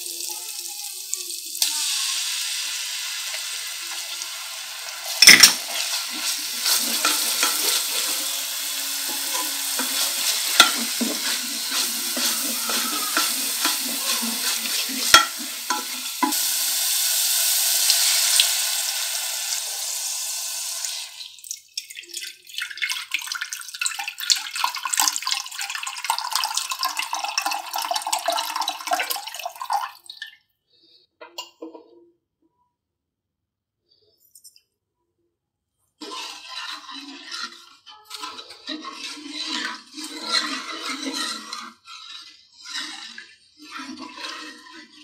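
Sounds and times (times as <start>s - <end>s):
paste sizzling in oil: 0.0s - 21.4s, 36.0s - 45.0s
water poured into hot pan: 0.0s - 30.9s, 36.0s - 45.0s
oil crackling and spitting: 5.1s - 19.0s
wooden spoon knocking pan: 9.0s - 16.4s.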